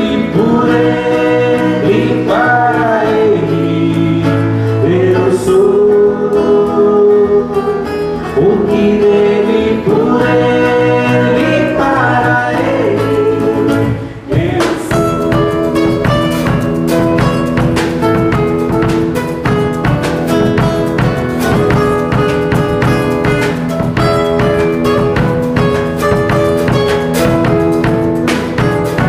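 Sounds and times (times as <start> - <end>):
women singing: 0.0 - 7.8, 8.4 - 16.6
strummed acoustic guitar: 0.0 - 29.0
drum kit: 8.1 - 29.0.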